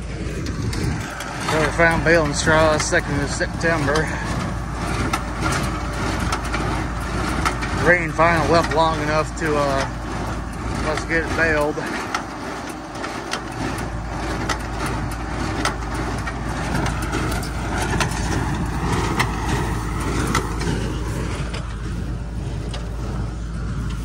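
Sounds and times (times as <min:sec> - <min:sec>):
tractor engine running: 0:00.0 - 0:24.0.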